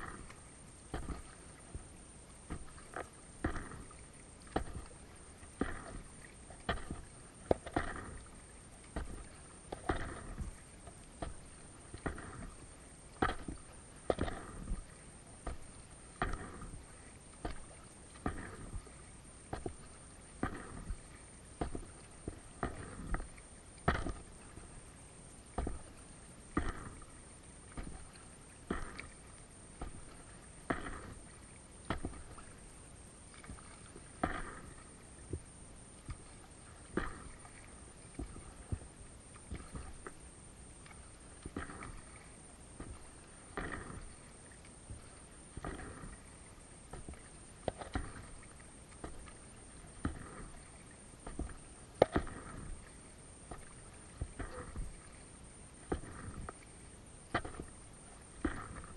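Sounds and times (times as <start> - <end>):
kayak paddle splashing: 0.0 - 58.9.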